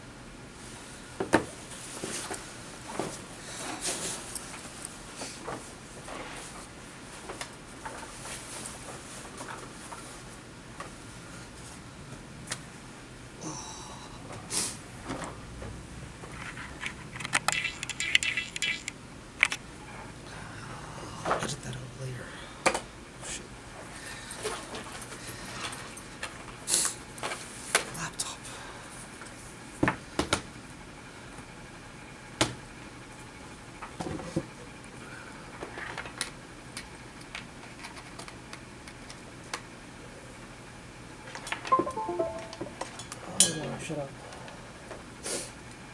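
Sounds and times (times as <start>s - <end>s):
small clicks and rattles: 16.3s - 19.6s.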